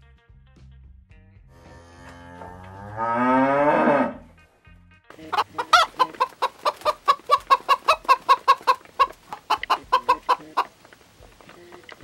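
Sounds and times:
chickens clucking: 5.1 - 12.0.

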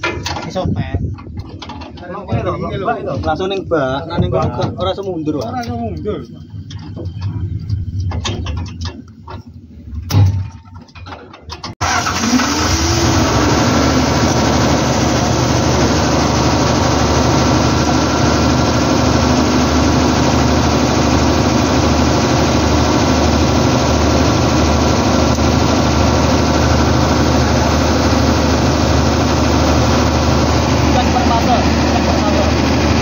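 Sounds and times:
generator engine running: 11.8 - 33.0.

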